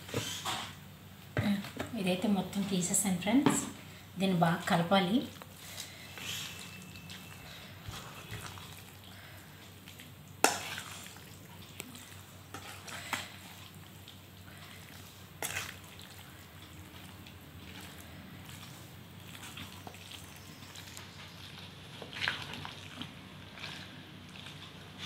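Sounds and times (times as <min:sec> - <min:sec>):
hand squishing wet pickle: 0:05.4 - 0:25.0.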